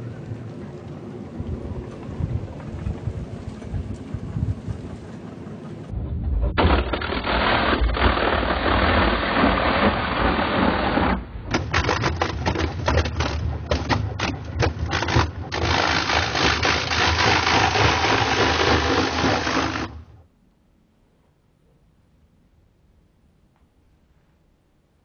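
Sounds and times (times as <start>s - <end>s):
apple grinder crunching: 6.6s - 10.9s, 11.5s - 20.0s.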